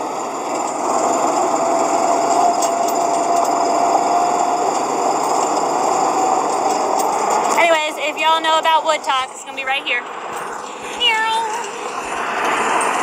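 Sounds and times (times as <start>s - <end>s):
thin whine: 0.0s - 13.0s
utility vehicle engine droning: 0.0s - 13.0s.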